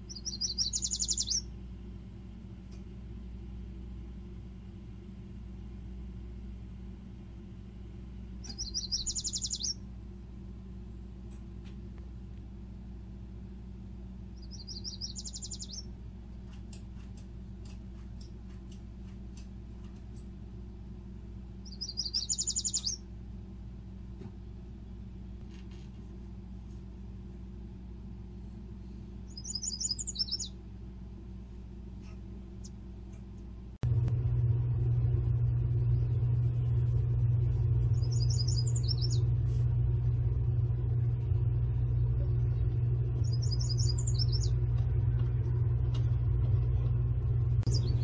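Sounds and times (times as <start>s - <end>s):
songbird trilling: 0.0s - 1.5s, 8.4s - 9.8s, 14.4s - 15.9s, 21.6s - 23.0s, 29.3s - 30.6s, 37.9s - 39.3s, 43.2s - 44.6s, 47.7s - 48.0s
steady low hum: 0.0s - 48.0s.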